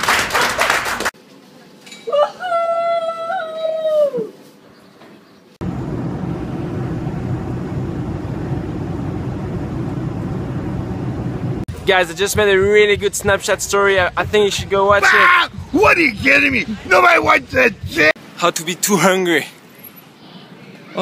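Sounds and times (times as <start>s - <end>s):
airliner cabin noise: 5.6s - 11.7s.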